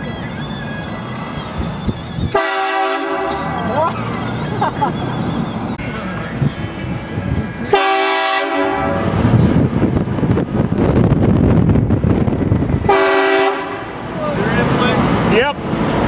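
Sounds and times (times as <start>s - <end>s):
truck engine and road noise: 0.0s - 16.0s
train horn blasting: 2.3s - 3.5s, 7.7s - 9.2s, 12.8s - 14.0s.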